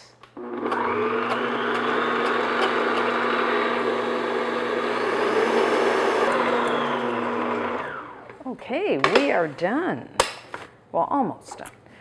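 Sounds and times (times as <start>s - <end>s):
stand mixer whisking: 0.4s - 8.2s.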